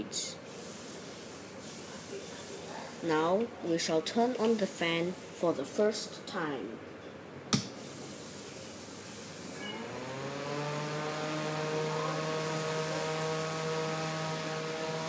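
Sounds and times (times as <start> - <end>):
computer fan whining and humming: 0.0 - 2.0, 2.6 - 15.0
rush of air from fan: 0.0 - 3.2, 7.8 - 15.0.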